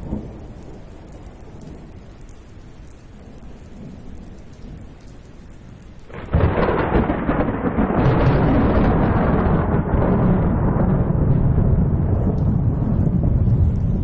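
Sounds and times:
thunder rumbling: 0:00.0 - 0:02.0, 0:06.1 - 0:14.0
rain hissing: 0:00.0 - 0:14.0.

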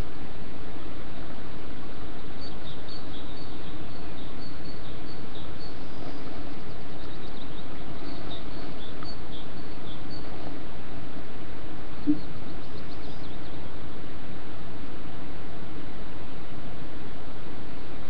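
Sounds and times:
steady microphone hiss: 0:00.0 - 0:18.0
high bird chirps: 0:02.2 - 0:10.4, 0:12.0 - 0:13.8.

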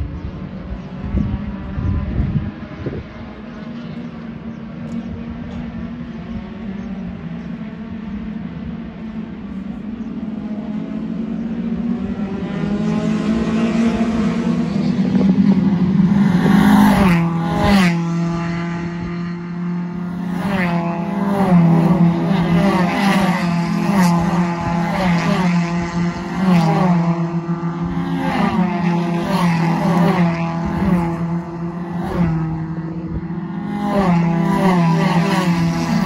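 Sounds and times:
race cars passing by: 0:00.0 - 0:36.0.

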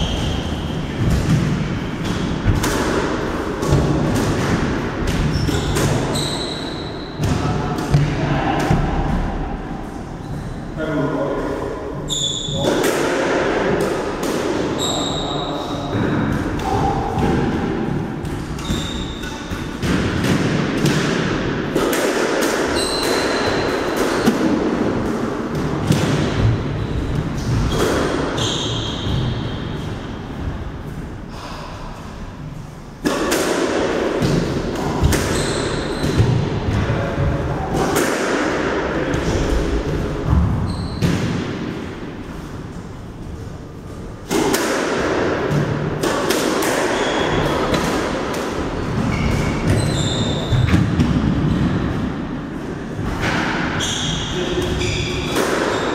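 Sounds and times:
squash ball hitting rackets and walls: 0:00.0 - 0:10.6, 0:11.4 - 0:55.9
sneakers squeaking on wooden floor: 0:05.1 - 0:07.2, 0:12.0 - 0:12.6, 0:18.6 - 0:19.6, 0:22.7 - 0:23.8, 0:28.4 - 0:29.8, 0:35.2 - 0:36.4, 0:40.6 - 0:41.2, 0:46.9 - 0:47.5, 0:48.7 - 0:51.8, 0:53.8 - 0:55.9.

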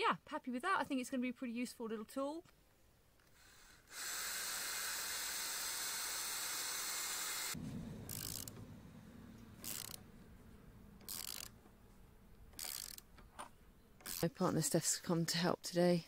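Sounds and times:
cordless drill driving screw: 0:03.2 - 0:08.6, 0:09.6 - 0:10.0, 0:11.0 - 0:11.5, 0:12.6 - 0:13.1, 0:14.0 - 0:14.3
socket ratchet clicking: 0:08.1 - 0:08.6, 0:09.6 - 0:10.0, 0:11.0 - 0:11.6, 0:12.5 - 0:14.3.

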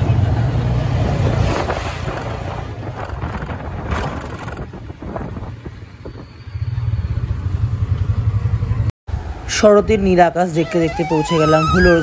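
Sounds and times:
auto-rickshaw engine throbbing: 0:00.0 - 0:08.9
road rumble: 0:00.0 - 0:12.0.

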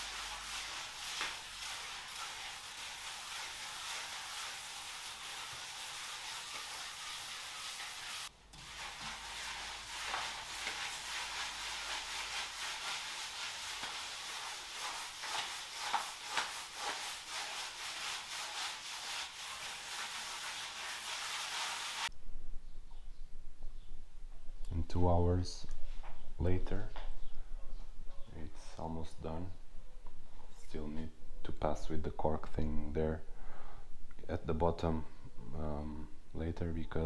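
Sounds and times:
trowel scraping render on wall: 0:00.0 - 0:22.1.

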